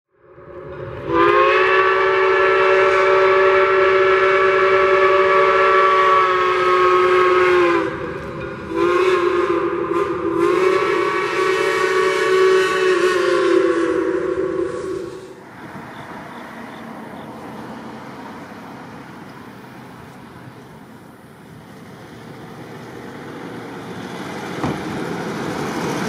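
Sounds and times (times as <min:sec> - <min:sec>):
steam whistle chord: 0:00.1 - 0:15.4.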